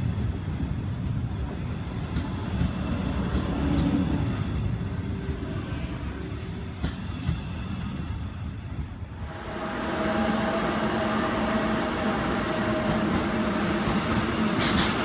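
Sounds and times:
train wheels rumbling on rail: 0:00.0 - 0:15.0
sharp rail clicks: 0:01.3 - 0:04.1.

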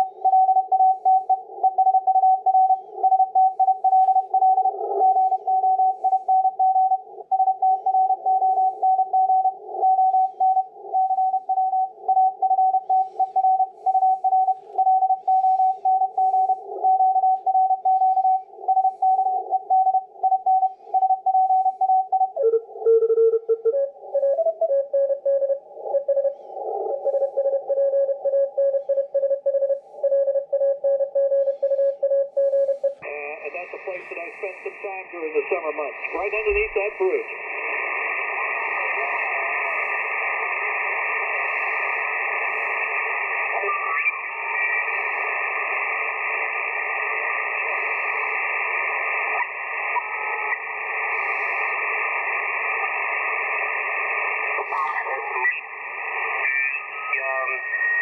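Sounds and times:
morse code beeps: 0:00.0 - 0:34.8.

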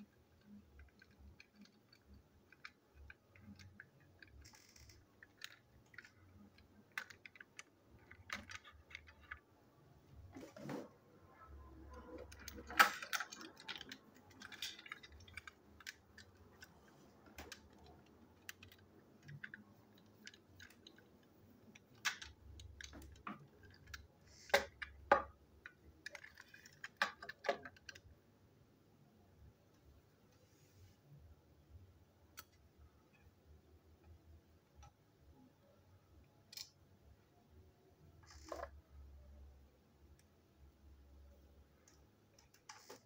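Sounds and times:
plastic toy parts clicking: 0:00.0 - 0:09.6, 0:11.9 - 0:28.1, 0:36.4 - 0:36.8.

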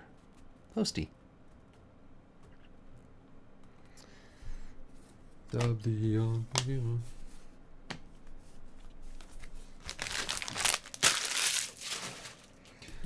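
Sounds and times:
plastic packaging crinkling: 0:09.2 - 0:12.8.

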